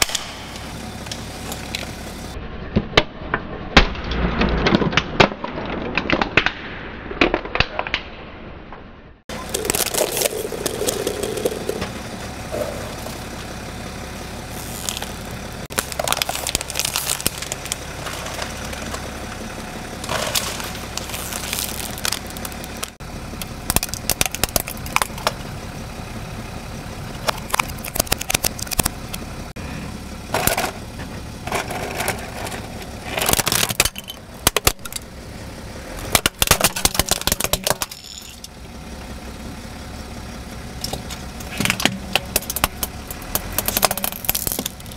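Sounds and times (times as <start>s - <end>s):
car engine running: 0.0s - 2.4s, 9.3s - 44.9s
plastic cracking under car tyre: 9.4s - 11.9s, 14.6s - 19.1s, 20.0s - 25.4s, 27.2s - 29.2s, 31.5s - 35.0s, 36.1s - 38.0s, 40.8s - 44.9s.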